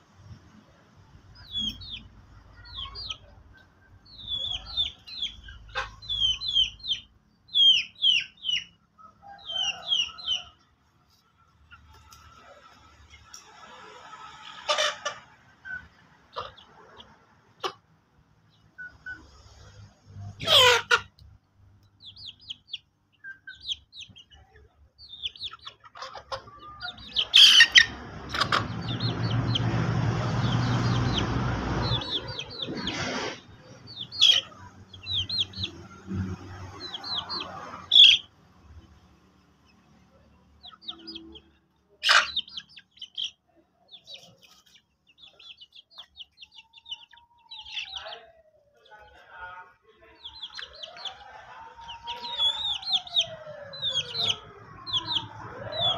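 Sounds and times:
chickens chirping: 0:00.0 - 0:55.9
low rising and falling call: 0:26.5 - 0:38.3, 0:45.2 - 0:49.0, 0:50.2 - 0:55.9.

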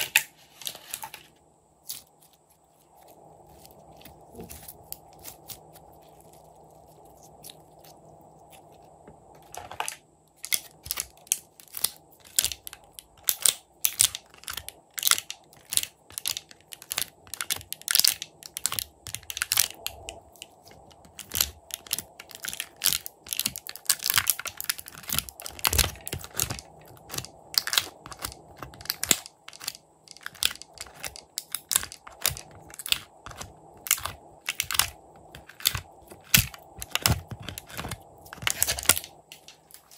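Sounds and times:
plastic tray crackling and clicking: 0:09.4 - 0:39.9.

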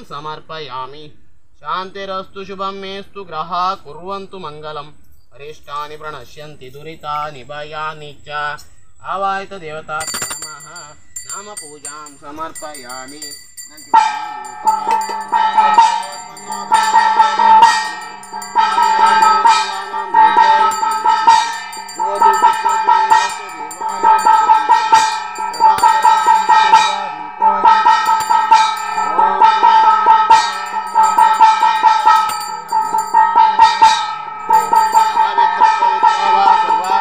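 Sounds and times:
hand bell ringing: 0:10.0 - 0:37.0.

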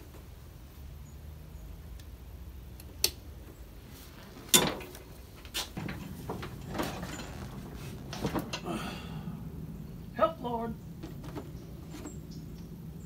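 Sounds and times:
knocks and rustling on seat: 0:04.2 - 0:08.6, 0:11.0 - 0:12.2.

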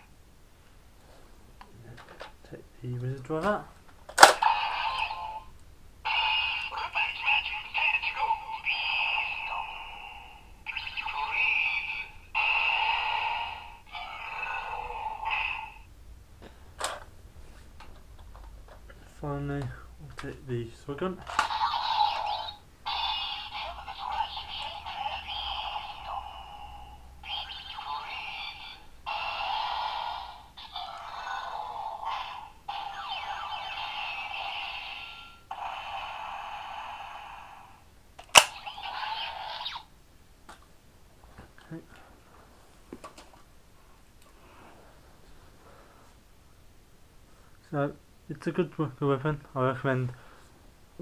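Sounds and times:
toy electronic sound effects: 0:04.2 - 0:15.9, 0:21.3 - 0:39.9
sharp clicks: 0:38.2 - 0:38.6.

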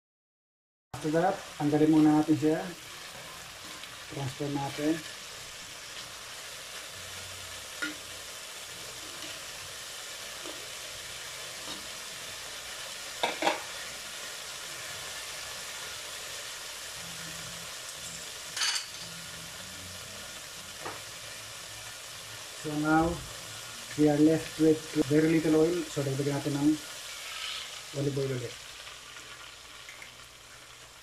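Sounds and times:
beef sizzling in a wok: 0:01.0 - 0:31.0.

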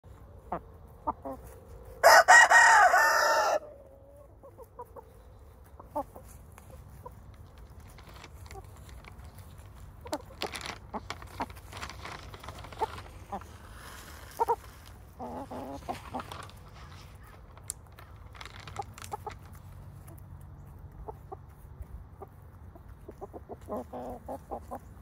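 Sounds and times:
hens clucking: 0:00.1 - 0:25.0
rooster crowing: 0:02.0 - 0:03.8.

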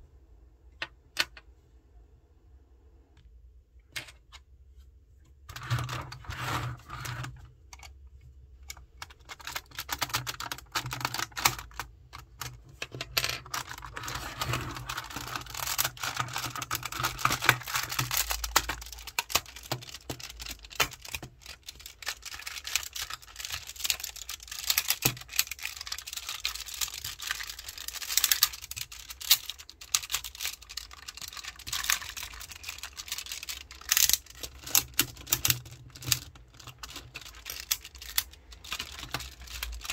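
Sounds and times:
plastic toy parts clicking: 0:07.7 - 0:08.0, 0:08.6 - 0:39.9.

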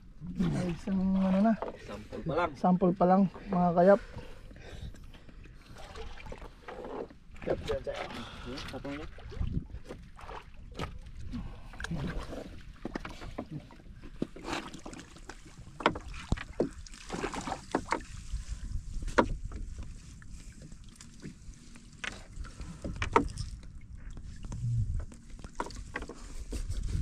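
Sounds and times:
water lapping and dripping: 0:00.0 - 0:27.0
wet fishing net hauled by hand: 0:11.9 - 0:23.7
knocks against wooden hull: 0:15.7 - 0:18.2, 0:18.9 - 0:19.8.

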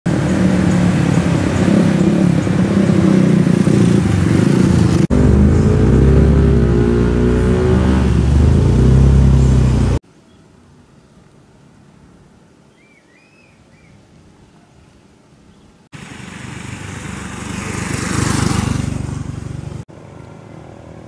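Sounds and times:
motorcycle engines running: 0:00.1 - 0:10.0, 0:16.0 - 0:21.0.

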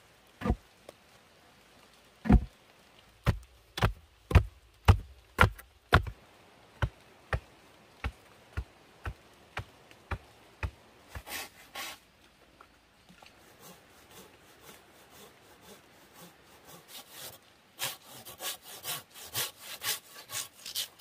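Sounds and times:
log thudding into soil: 0:02.2 - 0:02.5, 0:03.2 - 0:06.2.

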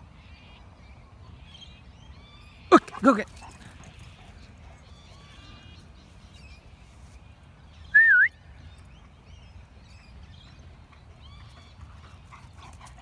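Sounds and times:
person whistling: 0:08.0 - 0:08.3.

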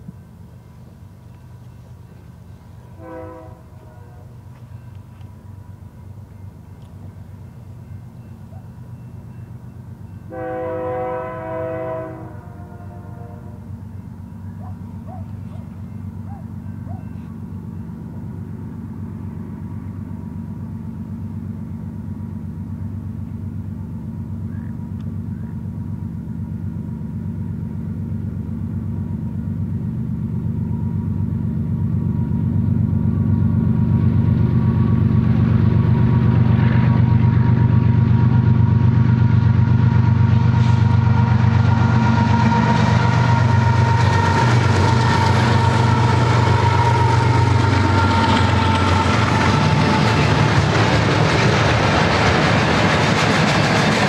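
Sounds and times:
diesel locomotive engine drone: 0:00.0 - 0:54.0
train wheels clattering on rails: 0:32.4 - 0:54.0.

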